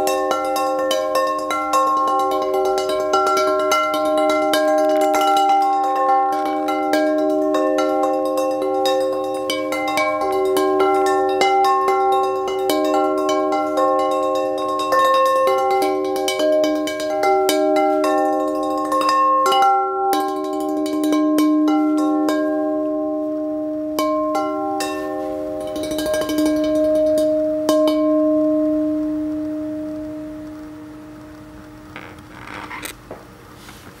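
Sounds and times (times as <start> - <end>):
ceramic bowls struck ringing: 0.0 - 32.5
soft rustle: 31.6 - 34.0.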